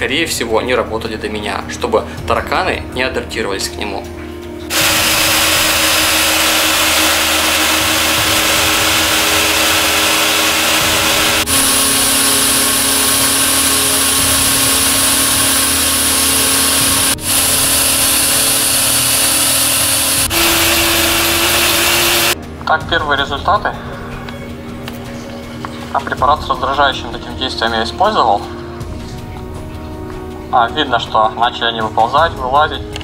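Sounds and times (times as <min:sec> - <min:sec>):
fog generator motor and blower: 0:04.7 - 0:22.4.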